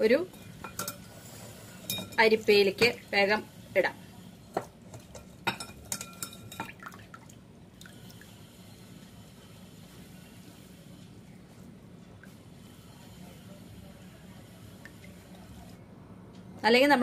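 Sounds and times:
glass bowl clinking on strainer: 1.8 - 3.0, 4.6 - 6.8.

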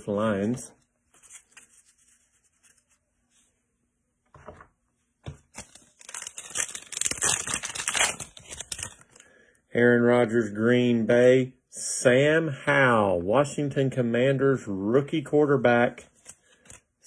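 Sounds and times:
foil wrapper crinkling and tearing: 5.5 - 9.2.

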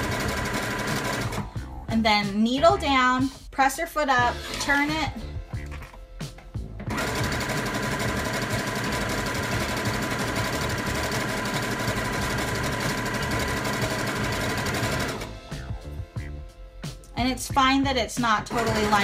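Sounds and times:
sewing machine stitching: 0.0 - 1.5, 6.9 - 15.3, 18.5 - 19.0.

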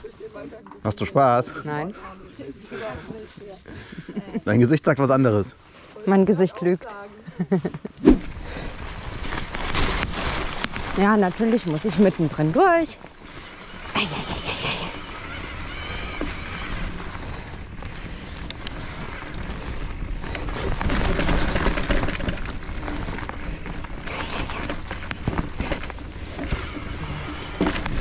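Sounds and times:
bike tyres on muddy trail: 0.0 - 28.0
bike rattles and clicks: 6.7 - 28.0.

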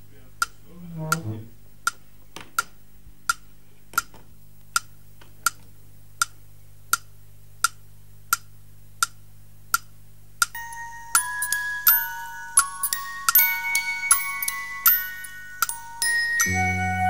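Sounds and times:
clock ticking: 0.0 - 2.0, 2.6 - 5.6
bell-like tune: 10.6 - 17.0.

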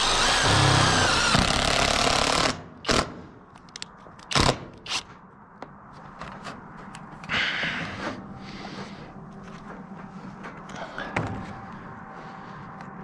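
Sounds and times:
impact driver hammering screw: 0.0 - 3.2.

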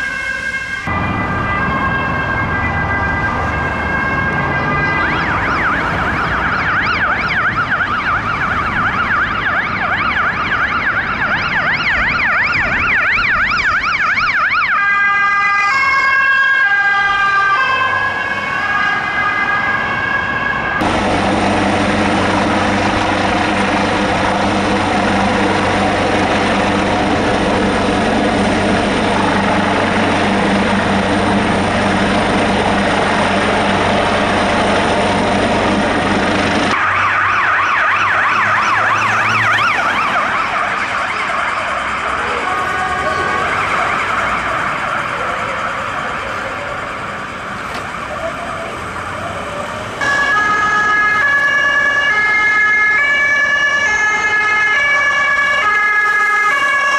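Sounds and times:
fast warbling siren wail: 0.0 - 56.9
two-tone hi-lo siren: 0.0 - 56.9
helicopter rotor and engine drone: 20.8 - 56.9.

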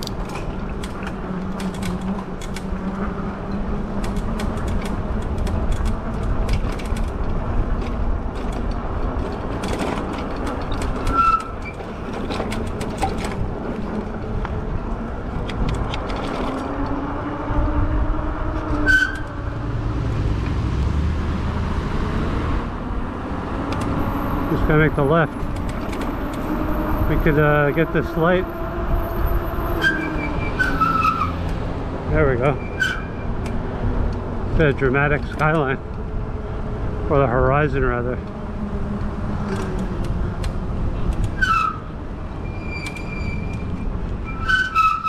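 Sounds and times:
wind and tyre rumble: 0.0 - 45.0
light rattles and clicks: 3.5 - 14.6
low motor hum: 11.8 - 30.5, 33.3 - 44.3.

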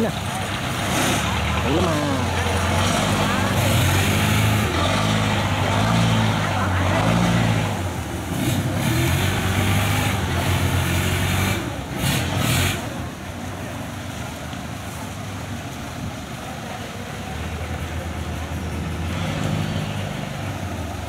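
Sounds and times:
combine harvester diesel engine: 0.0 - 21.0.

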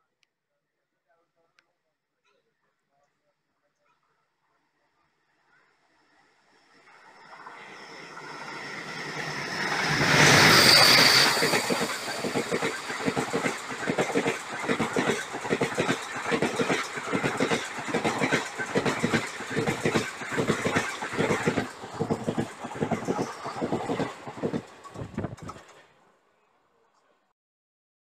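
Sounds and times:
diesel locomotive passing: 6.5 - 25.9
train wheels clattering over rail joints: 8.3 - 25.8.

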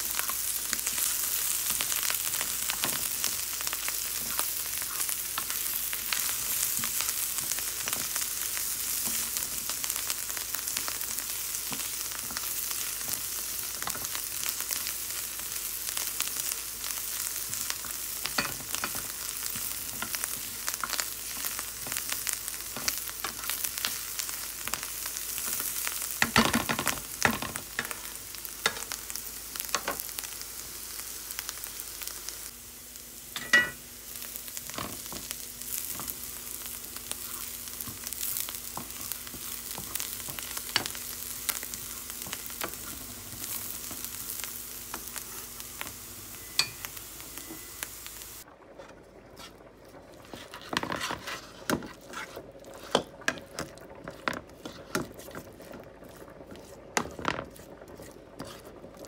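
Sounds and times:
food sizzling in a pan: 0.0 - 48.5, 49.4 - 59.0.

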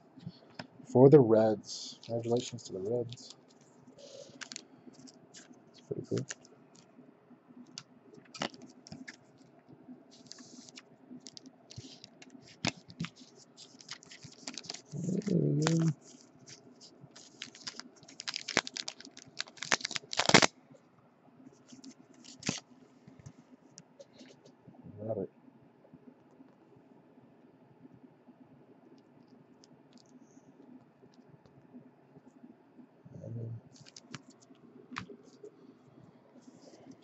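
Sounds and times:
plastic sleeve crinkling: 1.8 - 6.9, 7.7 - 9.2, 10.1 - 20.5, 21.6 - 22.6, 33.7 - 35.4
short voice hum: 14.9 - 16.0.

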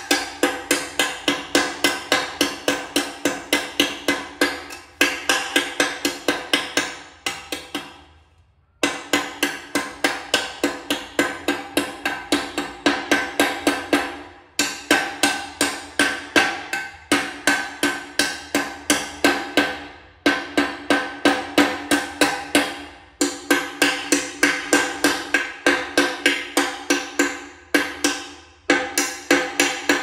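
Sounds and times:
mallet tapping ceramic tile: 0.0 - 8.2.

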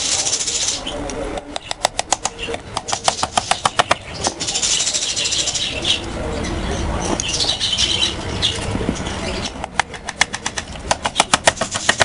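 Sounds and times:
hammer tapping a nail: 9.6 - 12.0.

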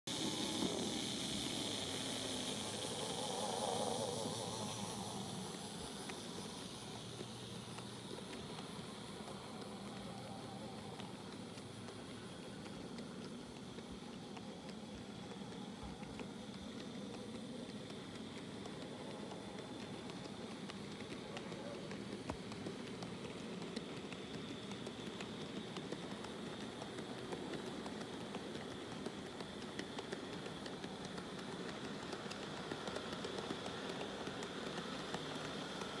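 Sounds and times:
model train wheels and motor whirring: 0.1 - 36.0
tiny clicks of train on track: 0.1 - 36.0.

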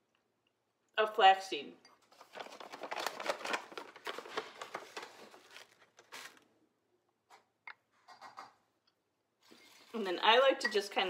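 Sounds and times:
paper pouch crinkling: 2.0 - 6.5.

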